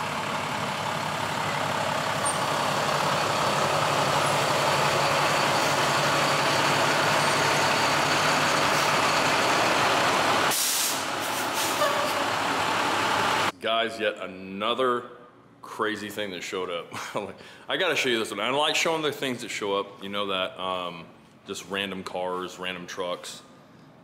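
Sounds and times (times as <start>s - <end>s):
truck engine running: 0.0s - 13.5s
air brakes hissing: 4.2s - 9.4s, 10.3s - 12.3s.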